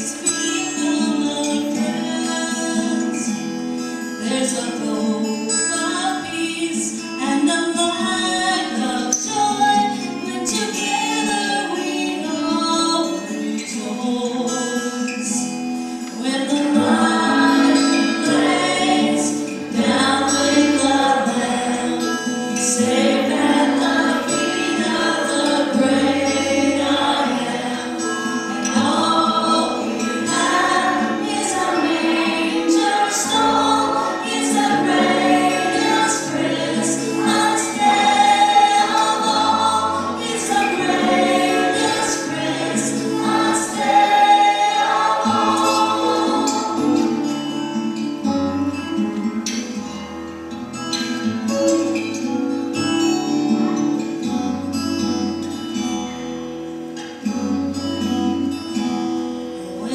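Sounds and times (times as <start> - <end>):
choir singing: 16.2 - 48.0.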